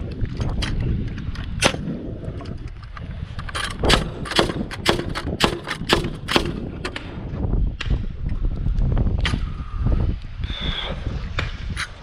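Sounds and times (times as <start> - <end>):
pneumatic nailer firing nails: 3.6 - 7.1.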